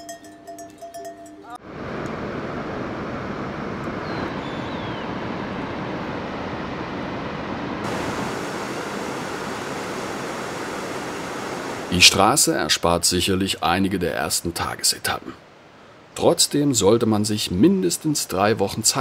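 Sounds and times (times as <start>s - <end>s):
river rushing through rocks: 4.2s - 13.1s.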